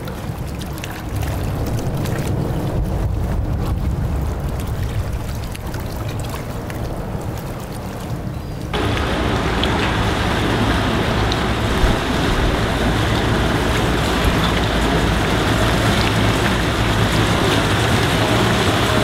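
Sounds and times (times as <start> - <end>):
water wash: 0.0 - 19.0
outboard motor humming: 8.7 - 19.0.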